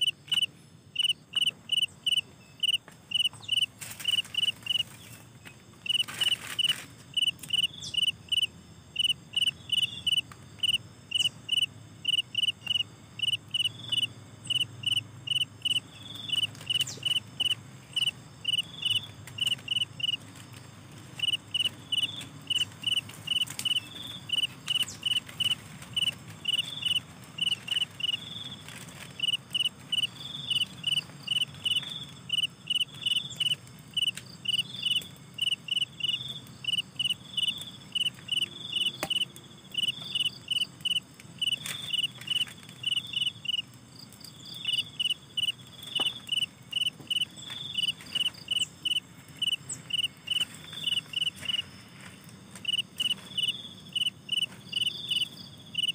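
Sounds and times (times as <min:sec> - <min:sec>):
crickets chirping: 0:00.0 - 0:55.9
higher insect call: 0:00.0 - 0:55.9.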